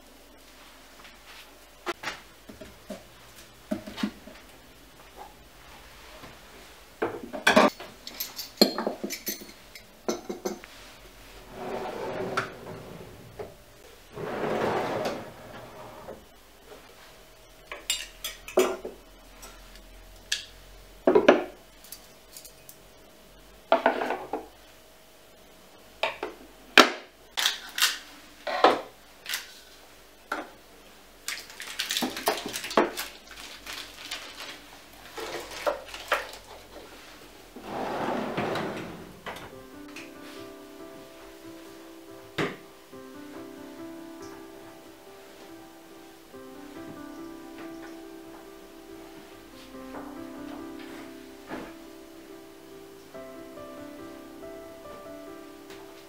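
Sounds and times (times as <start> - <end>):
metal kitchenware clattering: 7.4 - 10.6, 17.8 - 18.8
rustling and sliding: 10.6 - 17.2, 33.3 - 39.3, 50.6 - 51.8.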